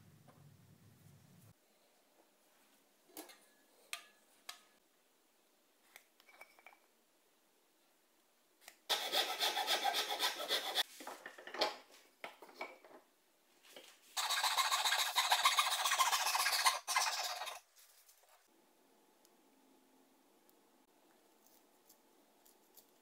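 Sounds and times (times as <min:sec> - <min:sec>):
hand saw cutting wood: 0:08.9 - 0:10.9.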